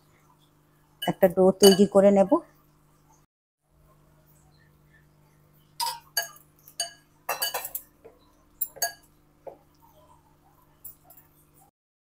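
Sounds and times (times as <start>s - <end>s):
utensil clinking against mixing bowl: 1.0s - 2.0s, 5.8s - 9.2s.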